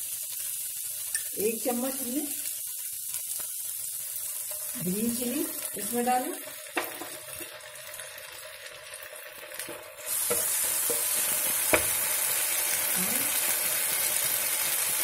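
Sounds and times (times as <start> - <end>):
vegetables sizzling in oil: 0.0 - 15.0
spatula knocking on pan: 6.8 - 7.2, 10.2 - 12.0.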